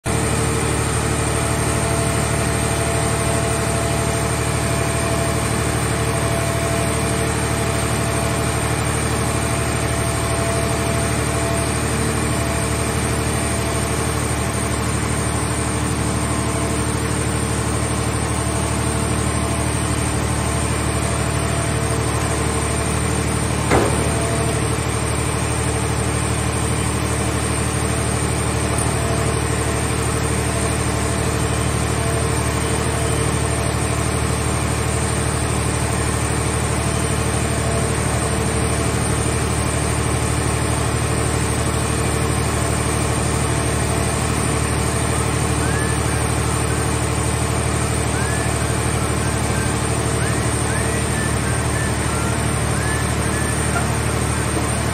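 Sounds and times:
hydraulic machinery drone: 0:00.1 - 0:54.9
sharp knock: 0:23.7 - 0:24.8.

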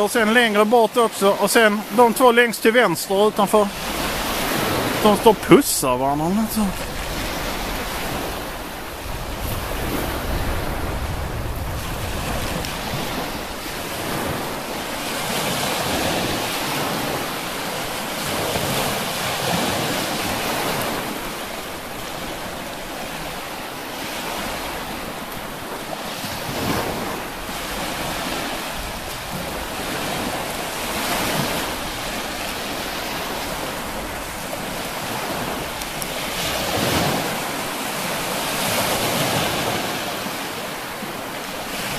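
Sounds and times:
waves washing onto shore: 0:00.0 - 0:41.9
wind buffeting microphone: 0:06.0 - 0:23.4.

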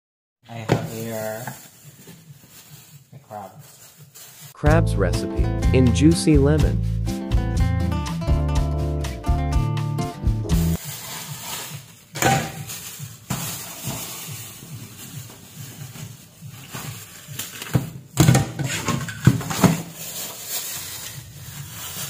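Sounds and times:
plastic bag rustling: 0:00.5 - 0:04.6, 0:10.7 - 0:22.0.

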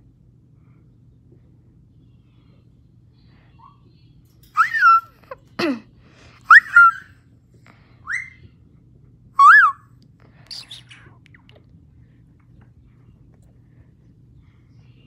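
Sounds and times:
parrot whistled calls: 0:04.6 - 0:05.2, 0:06.5 - 0:07.1, 0:08.0 - 0:08.4, 0:09.4 - 0:09.8.

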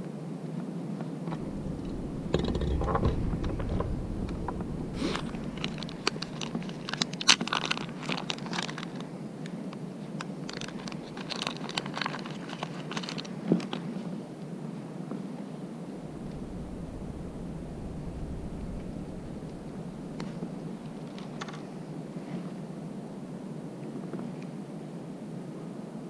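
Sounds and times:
plastic packet crinkling: 0:05.6 - 0:09.1, 0:10.2 - 0:13.8
plastic parts clicking and tapping: 0:10.2 - 0:13.8.

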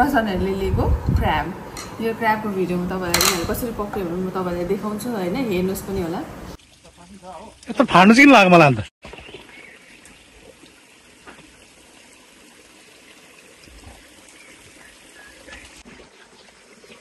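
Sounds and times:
stream trickling over stones: 0:05.0 - 0:08.0, 0:09.0 - 0:17.0.

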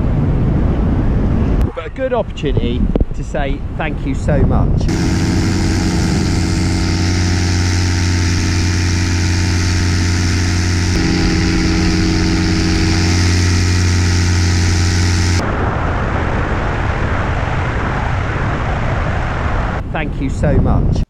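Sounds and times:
rushing wind noise: 0:00.0 - 0:19.9
paramotor engine drone: 0:04.7 - 0:15.5.

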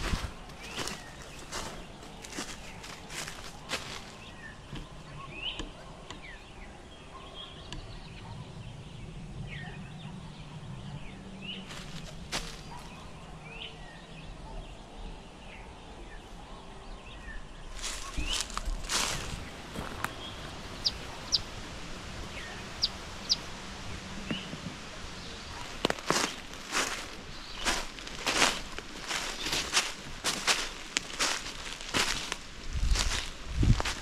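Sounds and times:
footsteps: 0:00.0 - 0:04.2, 0:11.7 - 0:13.0, 0:17.8 - 0:21.8, 0:25.4 - 0:34.0
low hum: 0:00.0 - 0:28.1
birds chirping: 0:00.0 - 0:34.0.

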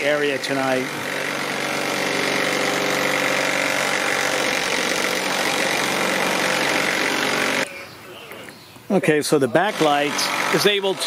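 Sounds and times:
machinery droning: 0:00.0 - 0:08.4.

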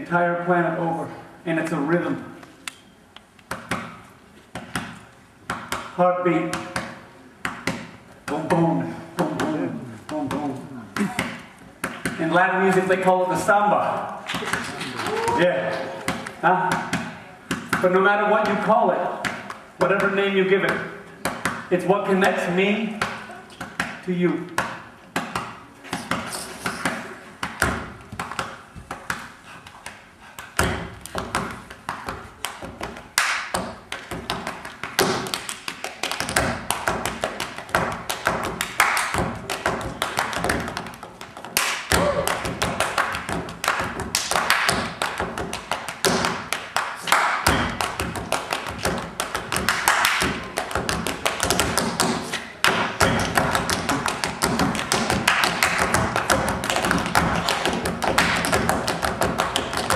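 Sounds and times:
tap shoes on stage floor: 0:30.6 - 0:59.9.

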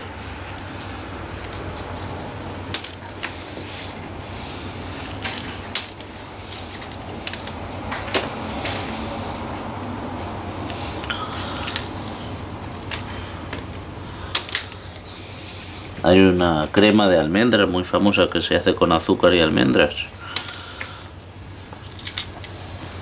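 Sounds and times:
almond shells cracking: 0:00.0 - 0:08.4, 0:10.3 - 0:16.1, 0:18.9 - 0:21.1, 0:21.7 - 0:23.0
low background hum: 0:00.0 - 0:23.0.

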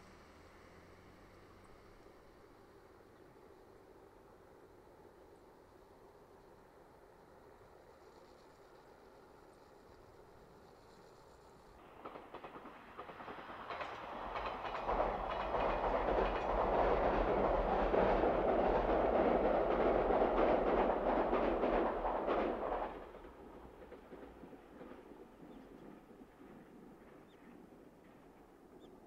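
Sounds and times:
train rumbling over bridge: 0:00.0 - 0:29.0
wheels clattering over rail joints: 0:11.8 - 0:27.4.

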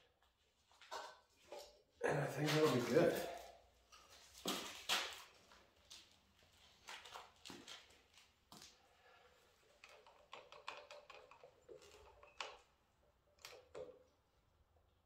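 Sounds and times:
small plastic and metal parts knocking: 0:09.7 - 0:12.7
faint irregular clicks and taps: 0:09.8 - 0:12.8.

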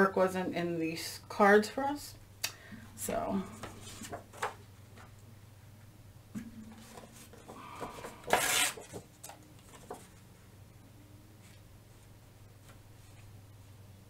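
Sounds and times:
paper rustling: 0:03.6 - 0:04.6, 0:06.8 - 0:10.3
paper ripping: 0:08.2 - 0:09.0.

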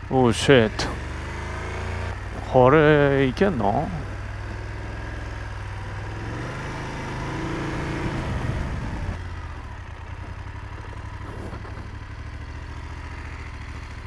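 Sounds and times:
motorcycle engine running: 0:00.0 - 0:14.0.

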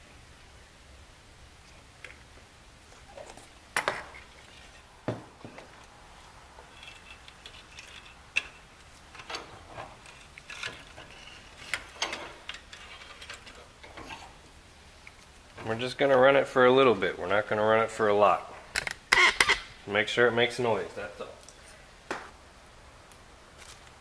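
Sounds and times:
metal parts clanking: 0:06.6 - 0:14.2.

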